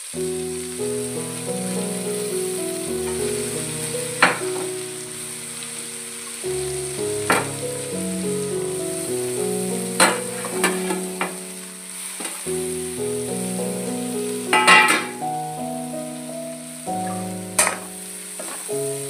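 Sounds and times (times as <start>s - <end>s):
background music melody: 0.0s - 19.0s
faint sizzle: 0.0s - 19.0s.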